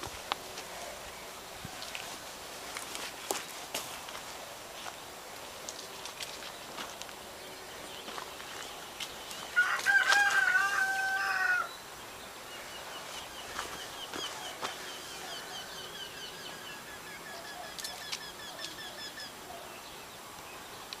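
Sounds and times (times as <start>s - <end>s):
rooster crowing: 9.5s - 11.8s
small bird chirping: 12.6s - 20.6s.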